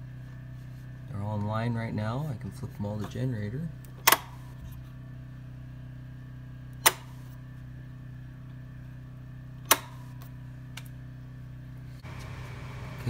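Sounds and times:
generator humming: 0:00.0 - 0:13.0
rocker switch clicks: 0:03.8 - 0:04.4, 0:06.8 - 0:07.2, 0:09.7 - 0:10.9.

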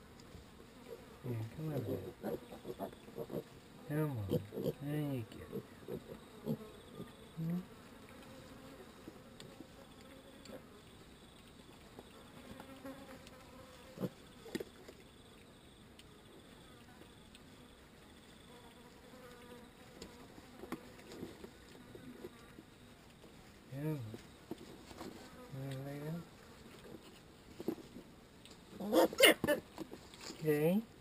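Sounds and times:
flying insects buzzing: 0:00.0 - 0:15.7, 0:16.3 - 0:23.2.

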